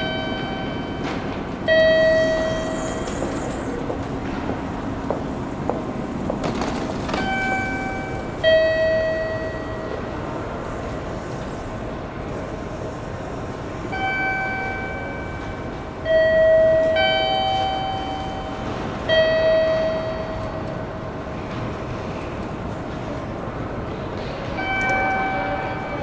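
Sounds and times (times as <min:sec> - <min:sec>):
rail background noise: 0:00.0 - 0:26.0
two-tone chime: 0:14.0 - 0:20.6.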